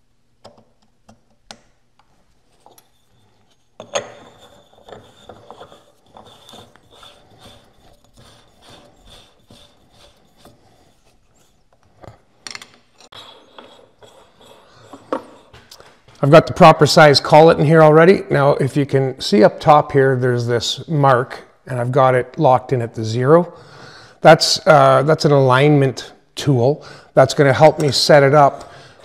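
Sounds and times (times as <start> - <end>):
metal ticking and rubbing: 2.5 - 12.2.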